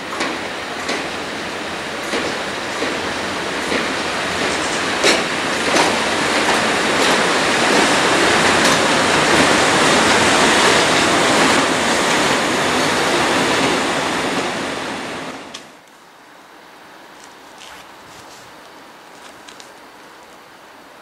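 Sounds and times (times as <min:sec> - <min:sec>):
locomotive wheels rolling on rails: 0:00.0 - 0:14.6.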